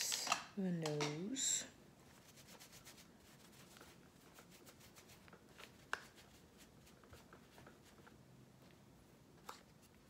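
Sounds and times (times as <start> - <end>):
makeup brush scratchy strokes: 2.0 - 8.2.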